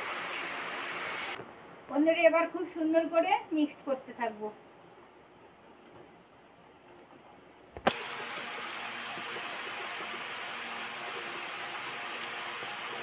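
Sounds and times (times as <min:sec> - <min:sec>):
whisk beating batter in bowl: 0:07.9 - 0:13.0.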